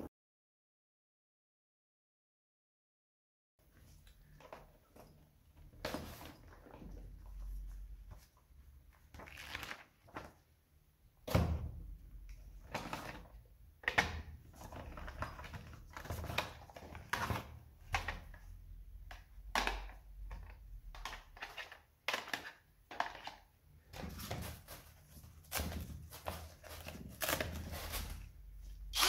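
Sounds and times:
paper manual rustling: 9.2s - 10.4s, 24.0s - 29.0s.

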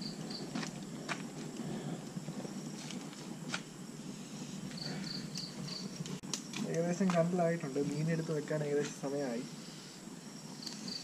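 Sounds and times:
fire low rush: 0.0s - 11.0s
wood fire crackling: 0.0s - 11.0s.

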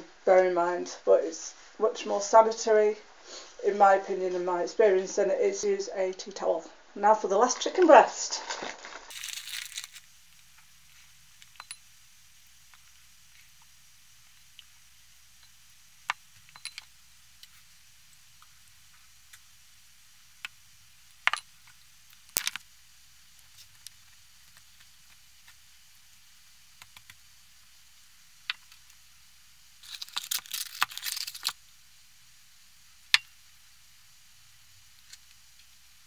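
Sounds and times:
crackly rustling: 7.4s - 27.3s, 29.7s - 31.7s.

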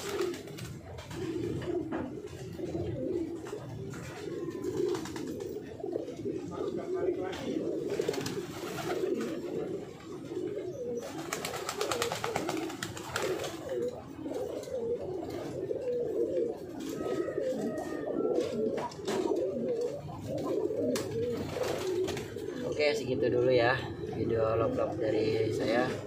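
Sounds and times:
wings flapping: 0.0s - 5.6s, 7.4s - 9.8s, 10.9s - 22.6s
pigeons cooing: 0.0s - 26.0s.

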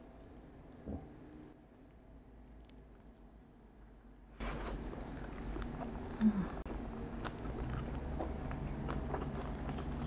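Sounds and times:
chewing fried chicken: 4.4s - 10.0s.

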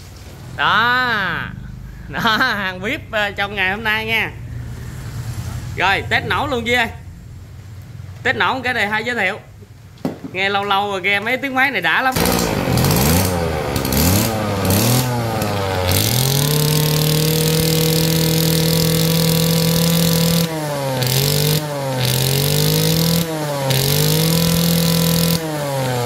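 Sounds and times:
brush-cutter engine revving: 12.1s - 26.0s.

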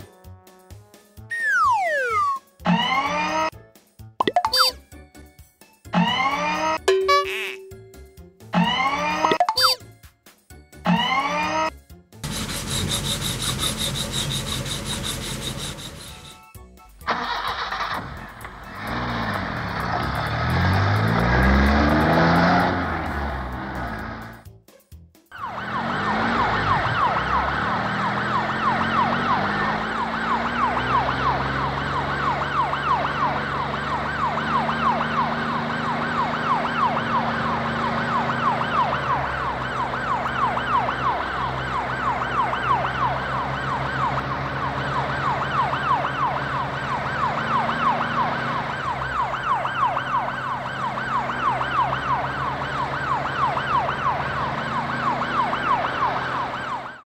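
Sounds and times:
warbling siren: 1.3s - 3.5s, 8.6s - 9.8s, 25.3s - 57.0s.

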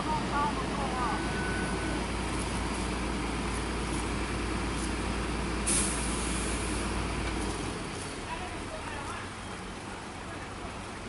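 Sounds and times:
diesel truck engine idling: 0.0s - 11.0s
air-brake hiss: 5.6s - 6.9s.

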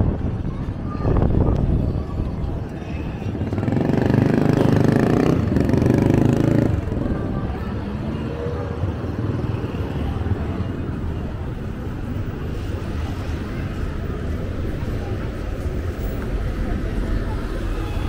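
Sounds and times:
steady traffic hum: 0.0s - 18.0s.

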